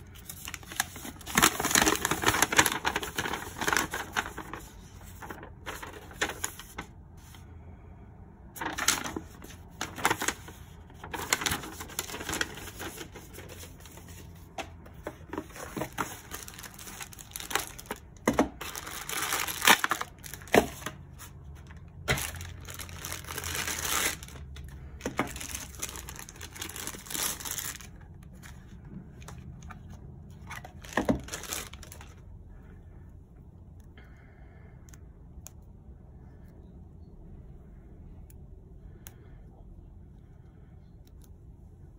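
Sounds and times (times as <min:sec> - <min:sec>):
paper and cardboard rustling: 0:00.0 - 0:07.4, 0:08.6 - 0:32.2.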